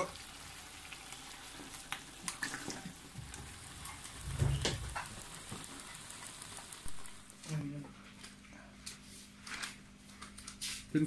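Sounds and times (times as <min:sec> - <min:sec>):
meat sizzling in a wok: 0:00.0 - 0:07.5.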